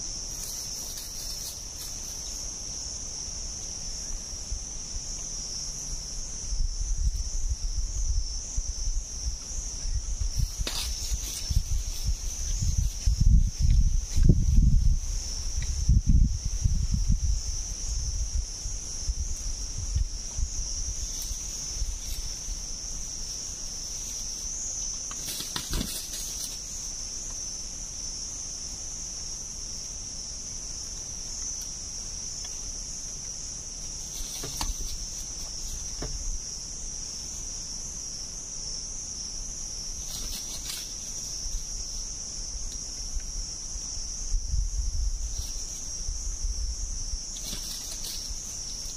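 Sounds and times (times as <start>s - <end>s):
low rumble of wind: 0.0s - 25.2s, 39.6s - 48.9s
insects droning: 0.0s - 48.9s.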